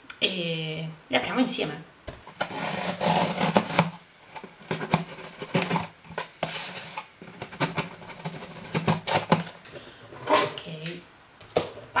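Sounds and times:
cardboard box rustling and scraping: 2.3 - 9.6.

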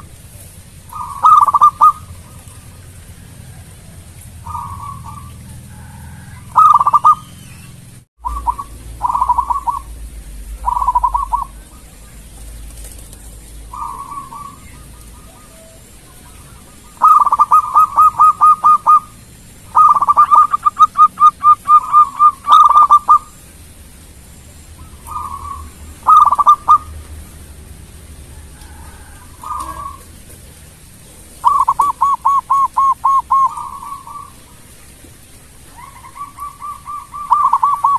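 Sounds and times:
dove cooing: 0.0 - 7.4, 8.2 - 23.4, 24.8 - 27.0, 28.3 - 34.8, 35.6 - 37.9.

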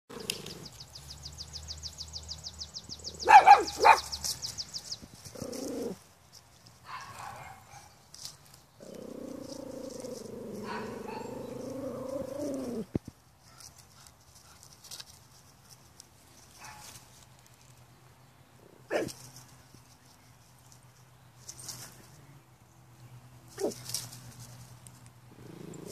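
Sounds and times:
puppy barking: 3.2 - 4.2, 6.9 - 7.9, 10.6 - 11.4, 18.9 - 19.2.

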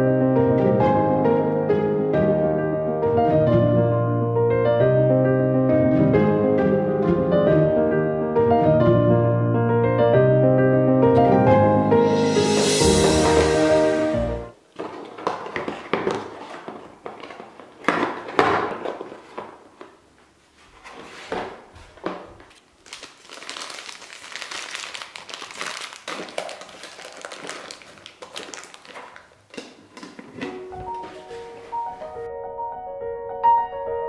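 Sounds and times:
plastic bags crinkling: 14.7 - 19.9, 21.6 - 32.2.

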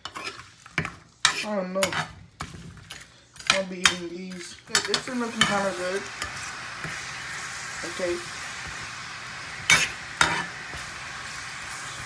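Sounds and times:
vegetables sizzling in a frying pan: 3.4 - 12.0.

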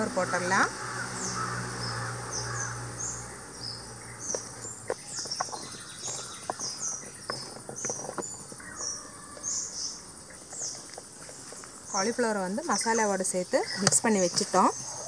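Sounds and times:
insects trilling: 0.0 - 15.0
bird chirps: 1.1 - 15.0.

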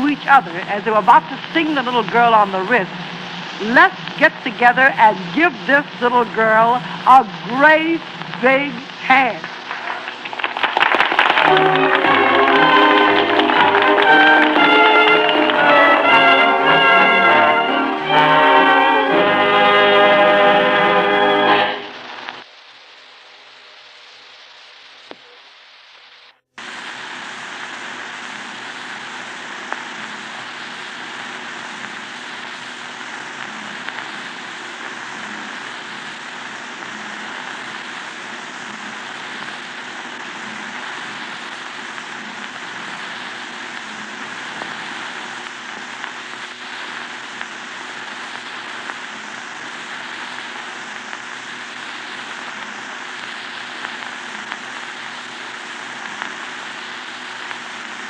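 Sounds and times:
record surface hiss: 0.0 - 58.0
sharp record clicks: 9.0 - 15.7.

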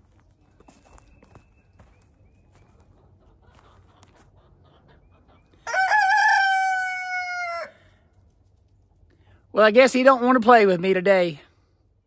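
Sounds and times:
rooster crowing: 5.6 - 7.9.

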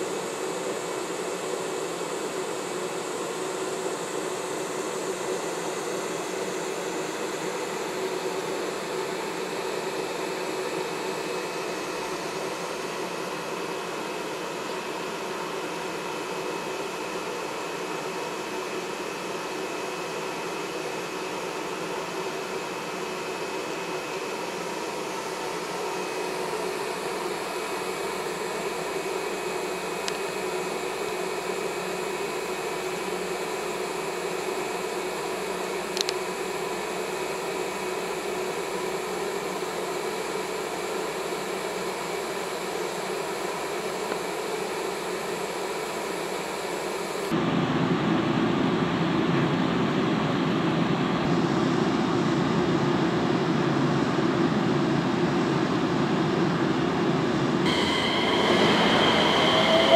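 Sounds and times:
locomotive cooling blowers whirring: 0.0 - 36.1, 49.8 - 59.9
constant humming tone: 57.6 - 59.9.

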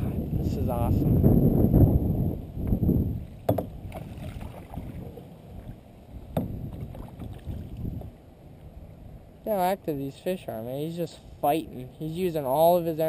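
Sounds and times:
water rumbling on kayak hull: 0.0 - 8.2
sharp knock on hull: 3.4 - 3.8, 6.3 - 6.8.

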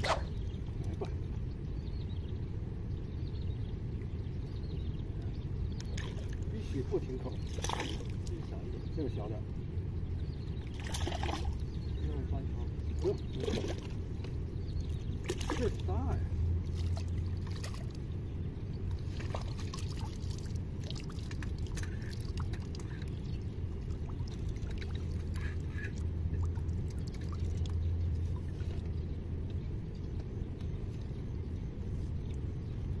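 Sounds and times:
flowing water rumble: 0.0 - 33.0
small splashes and clicks: 5.8 - 6.5, 7.4 - 8.5, 10.6 - 11.6, 15.2 - 15.9, 18.9 - 30.7.

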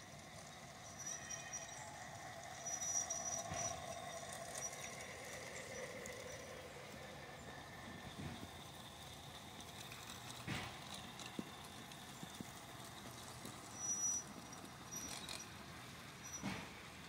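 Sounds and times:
model train wheels clicking on rails: 0.0 - 17.0
high squeaks: 0.8 - 6.7, 12.1 - 15.6, 16.2 - 16.6.

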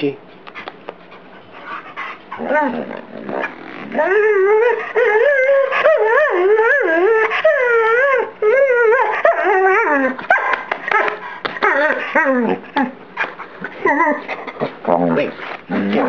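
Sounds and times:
dog howling and whining: 1.4 - 16.0
dog yipping: 8.9 - 12.9.

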